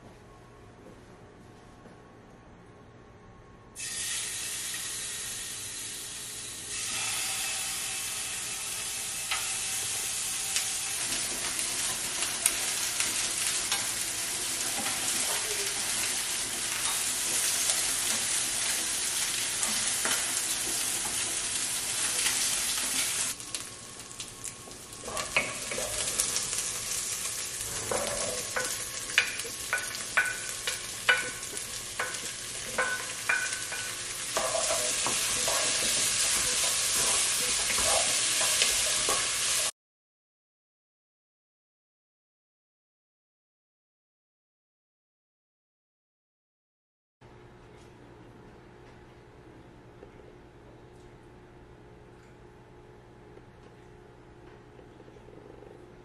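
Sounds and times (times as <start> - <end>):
food sizzling in a pan: 3.8 - 39.7.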